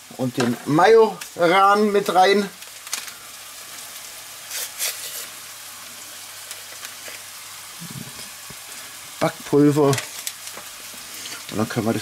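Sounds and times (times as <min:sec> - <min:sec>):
bacon and onions sizzling in pan: 0:00.0 - 0:12.0
paper packet rustling: 0:02.0 - 0:03.2, 0:09.5 - 0:10.8.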